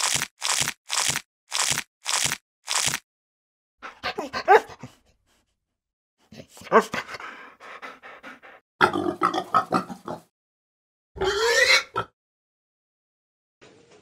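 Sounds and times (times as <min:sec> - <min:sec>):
dog barking and whining: 0:03.9 - 0:04.9.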